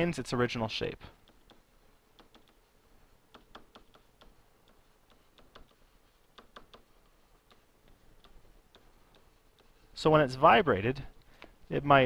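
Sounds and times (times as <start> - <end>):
stylus tapping on tablet: 1.2 - 2.6, 3.3 - 9.8.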